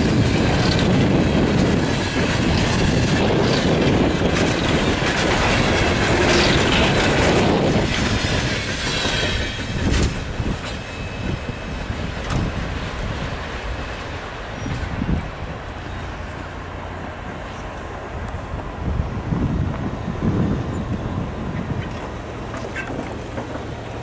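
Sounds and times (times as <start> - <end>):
train wheels clacking over rail joints: 0.0 - 18.4, 20.6 - 24.0
high wheel squeal: 5.5 - 12.4.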